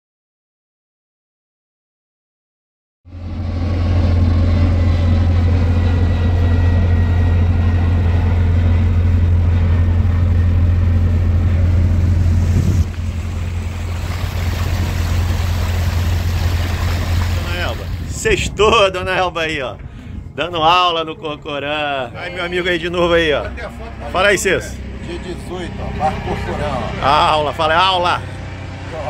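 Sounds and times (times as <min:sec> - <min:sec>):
boat engine humming: 0:03.1 - 0:29.0.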